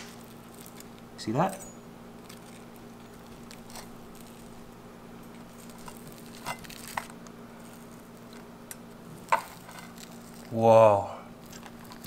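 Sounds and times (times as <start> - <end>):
steady low hum: 0.0 - 12.0
knife crackling through crisp skin: 2.2 - 10.6.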